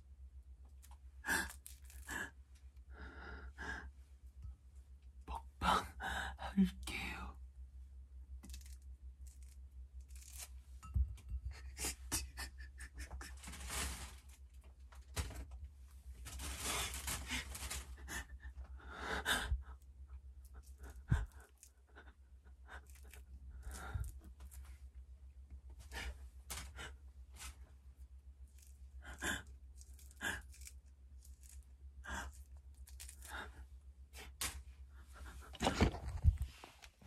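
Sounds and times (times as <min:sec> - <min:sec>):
person breathing heavily: 0:01.2 - 0:04.1, 0:16.6 - 0:19.8, 0:20.6 - 0:24.2.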